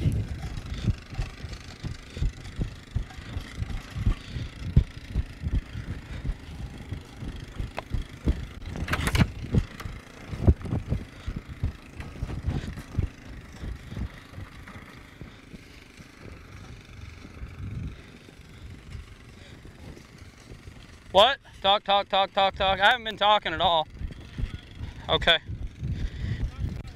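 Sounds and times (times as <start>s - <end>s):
low thumps and bumps: 0.0s - 15.3s
quad bike engine running: 0.0s - 26.9s.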